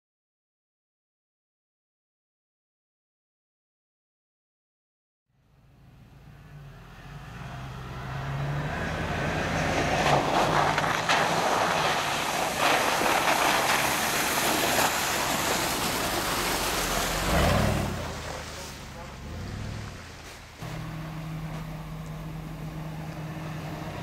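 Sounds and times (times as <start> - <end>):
truck engine humming: 5.5 - 24.0
tyres churning through mud: 6.5 - 24.0.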